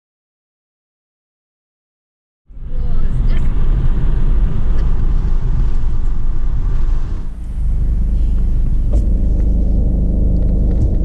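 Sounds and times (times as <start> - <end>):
car cabin road and engine rumble: 2.5 - 11.0.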